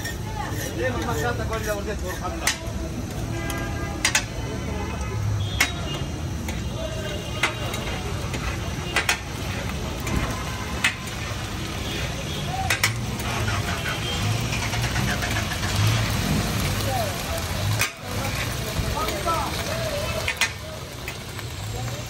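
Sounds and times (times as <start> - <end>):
meat sizzling in oil: 0.0 - 3.3, 4.0 - 22.0
metal spatula scraping griddle: 0.0 - 4.4, 7.4 - 16.2.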